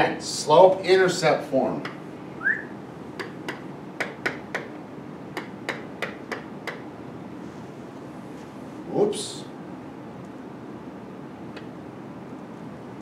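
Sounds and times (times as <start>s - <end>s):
pen tapping on whiteboard: 3.2s - 4.7s, 5.4s - 6.8s.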